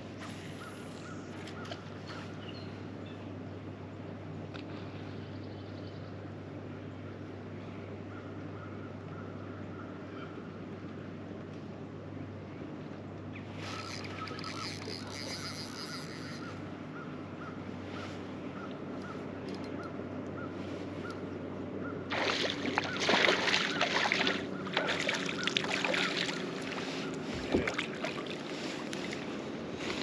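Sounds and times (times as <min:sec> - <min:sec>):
trolling motor humming: 0:00.0 - 0:30.0
fishing reel chirping: 0:13.7 - 0:16.6
fish splashing at surface: 0:22.1 - 0:26.8.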